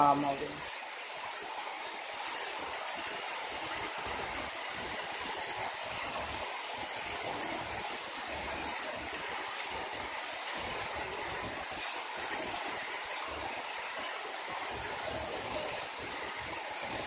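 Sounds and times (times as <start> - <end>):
heavy rain on paving: 0.0 - 17.0.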